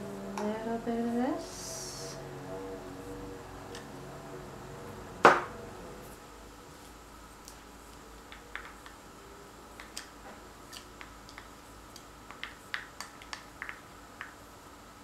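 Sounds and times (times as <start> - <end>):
stir stick clicking on paint cups: 10.7 - 14.4.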